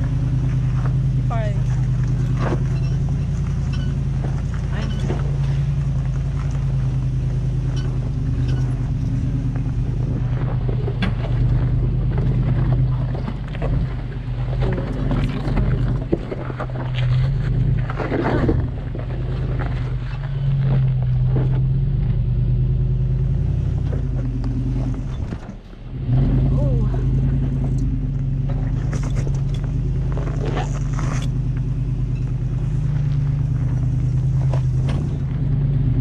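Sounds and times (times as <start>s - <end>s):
knocks and clatters: 0.0s - 22.2s
off-road vehicle engine running: 0.0s - 36.0s.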